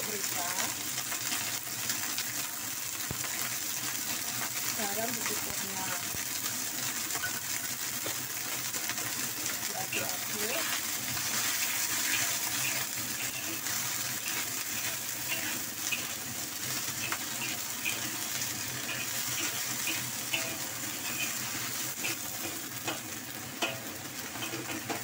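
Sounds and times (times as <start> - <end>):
vegetables frying in a wok: 0.0 - 25.0
metal spatula scraping a wok: 9.9 - 25.0
spatula knocking on wok: 22.0 - 25.0.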